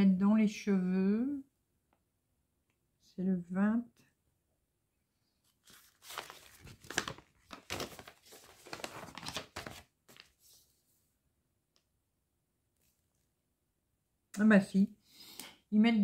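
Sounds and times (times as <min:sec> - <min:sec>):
plastic bag crinkling: 0:05.6 - 0:10.4.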